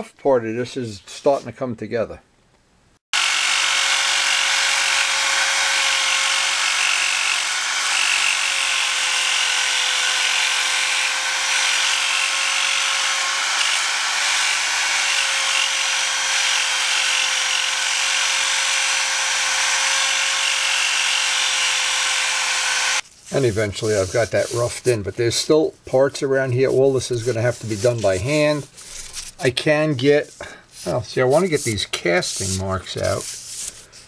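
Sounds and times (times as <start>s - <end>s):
rotary tool motor whine: 3.2s - 23.0s
sanding disc hissing on metal: 30.8s - 33.8s.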